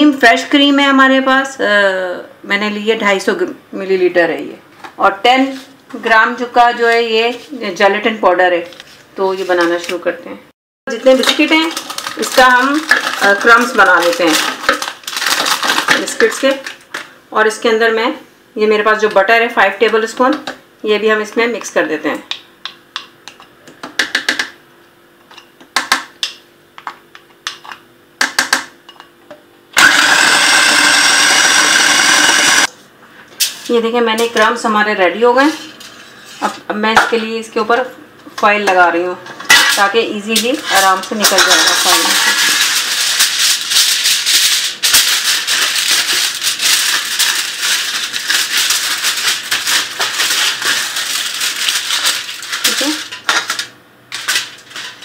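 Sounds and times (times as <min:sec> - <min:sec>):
aluminium foil crinkling: 0:10.9 - 0:17.1, 0:40.5 - 0:55.0
food processor running: 0:11.6 - 0:16.0, 0:29.8 - 0:32.7, 0:45.2 - 0:53.6.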